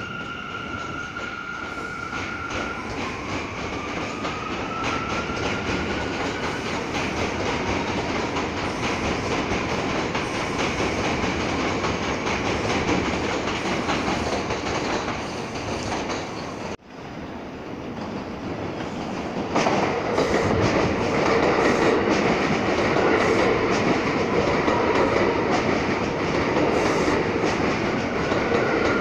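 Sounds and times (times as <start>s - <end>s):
train wheels clattering over rail joints: 0.8s - 16.8s.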